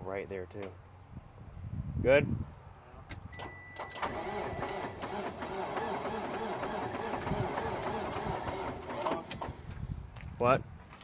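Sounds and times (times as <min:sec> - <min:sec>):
starter motor cranking engine: 0:04.0 - 0:09.7.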